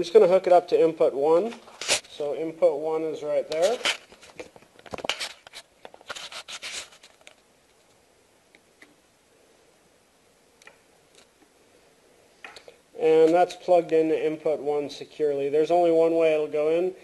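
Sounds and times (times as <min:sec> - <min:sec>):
cable and plug rustling and scraping: 0:01.4 - 0:02.3, 0:03.5 - 0:08.0.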